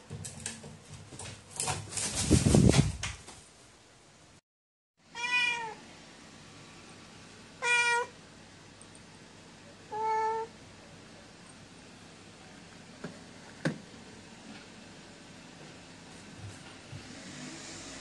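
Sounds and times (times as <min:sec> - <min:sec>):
cat meowing: 0:05.1 - 0:05.8, 0:07.6 - 0:08.2, 0:09.9 - 0:10.5.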